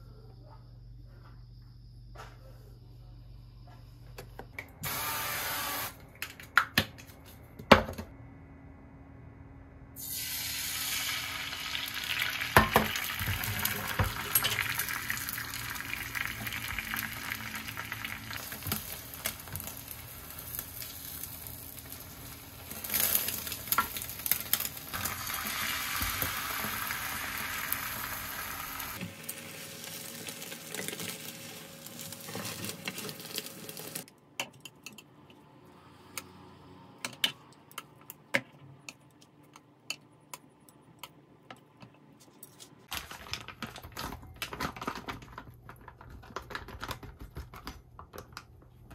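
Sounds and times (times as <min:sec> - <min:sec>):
food sizzling in a frying pan: 0:10.0 - 0:34.1.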